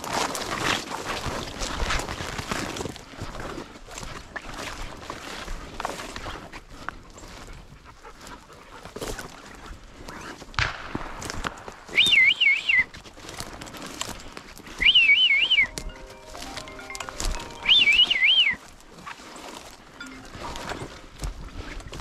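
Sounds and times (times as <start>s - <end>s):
footsteps through brush: 0.0s - 22.0s
dry twigs crackling: 10.4s - 22.0s
loud warbling whistles: 11.9s - 12.9s, 14.8s - 15.9s, 17.5s - 18.6s.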